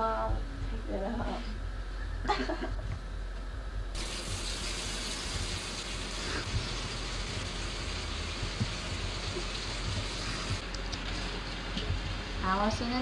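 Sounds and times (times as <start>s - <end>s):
running water hissing: 4.0s - 10.6s.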